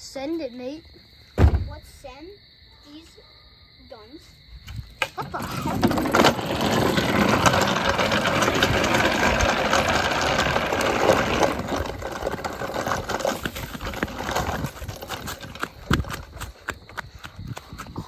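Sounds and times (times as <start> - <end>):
trike wheels skidding on ground: 5.0 - 18.0.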